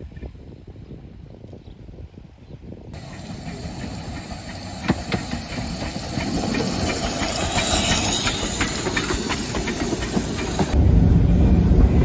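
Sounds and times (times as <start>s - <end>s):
steam hissing: 3.0s - 10.8s
wheels clicking over rail joints: 3.0s - 10.8s.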